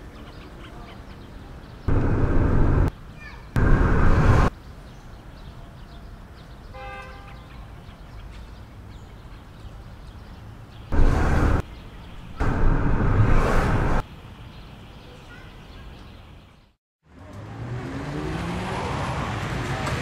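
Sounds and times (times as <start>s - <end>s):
car cabin road rumble: 1.9s - 2.9s.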